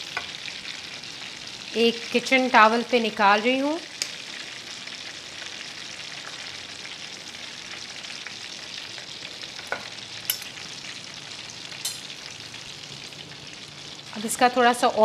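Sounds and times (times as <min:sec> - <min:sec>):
hot oil sizzling: 0:00.0 - 0:15.0.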